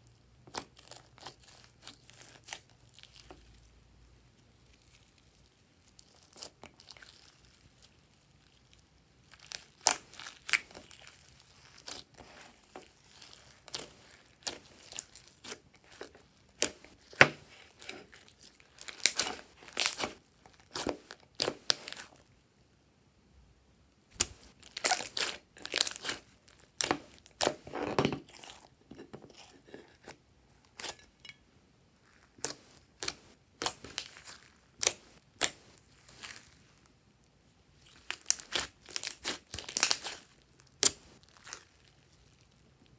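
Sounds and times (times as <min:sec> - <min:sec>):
slime popping and crackling: 0:06.0 - 0:22.1, 0:24.2 - 0:27.6, 0:37.8 - 0:42.0.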